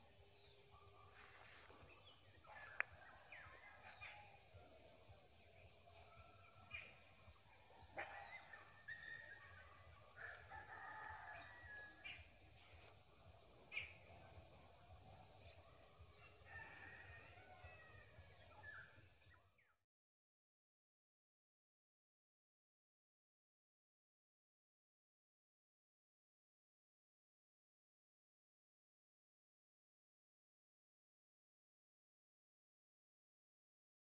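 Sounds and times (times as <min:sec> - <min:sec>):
rooster crowing: 0:10.2 - 0:12.0, 0:16.3 - 0:18.2.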